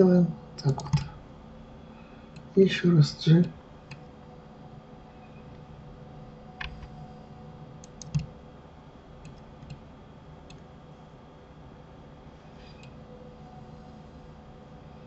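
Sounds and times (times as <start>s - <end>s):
faint steady hum: 0.0s - 15.0s
mouse and keyboard clicks: 0.6s - 1.1s.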